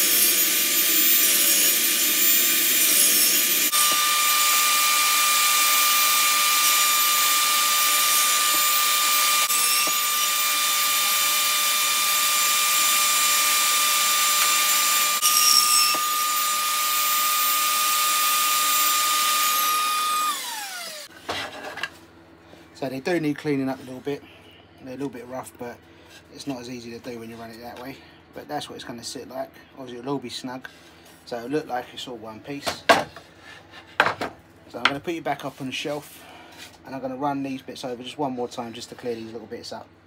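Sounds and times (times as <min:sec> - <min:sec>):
table saw cutting wood: 0:00.0 - 0:21.6.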